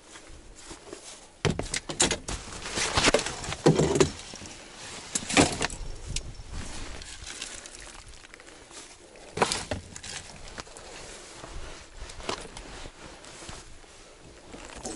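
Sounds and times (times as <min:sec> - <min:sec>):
fishing gear rattling and clinking: 0:03.0 - 0:11.0, 0:14.5 - 0:14.9.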